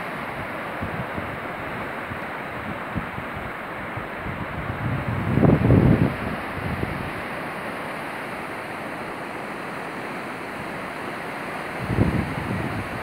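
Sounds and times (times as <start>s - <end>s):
wind buffeting microphone: 0.0s - 7.3s, 11.8s - 13.0s
fast-flowing river rushing: 0.0s - 13.0s.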